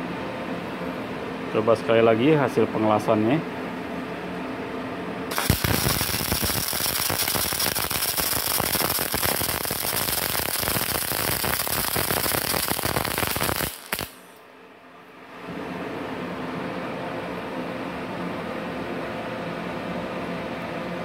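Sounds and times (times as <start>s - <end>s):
welding arc pop: 5.3s - 14.3s
welding arc crackling: 5.3s - 14.4s.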